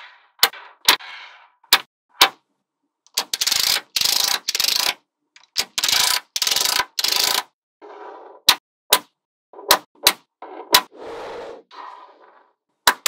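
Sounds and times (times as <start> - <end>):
magnetic balls clicking: 3.1 - 7.4.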